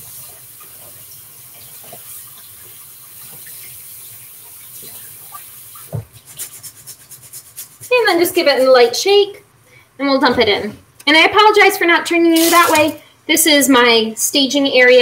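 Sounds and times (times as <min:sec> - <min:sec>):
tap water running over rice: 0:00.0 - 0:07.8, 0:12.4 - 0:13.0.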